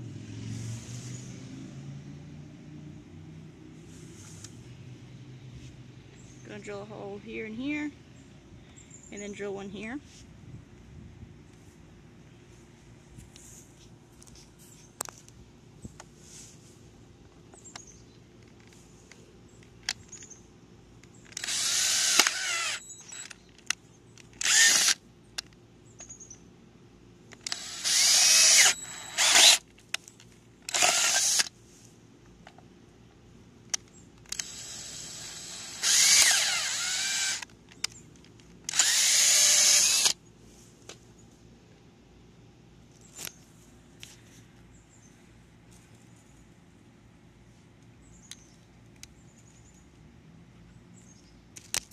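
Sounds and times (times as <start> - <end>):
power drill boring through plastic: 21.3 - 23.3, 24.4 - 25.0, 27.5 - 29.6, 30.7 - 31.5, 34.3 - 37.5, 38.7 - 40.2
small clicks: 51.5 - 51.9.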